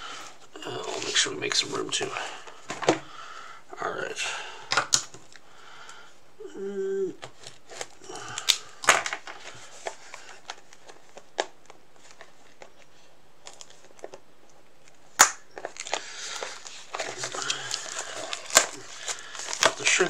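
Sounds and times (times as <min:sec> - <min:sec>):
plastic shrink wrap crinkling: 0:07.3 - 0:20.0
loud plastic snap: 0:15.2 - 0:15.5.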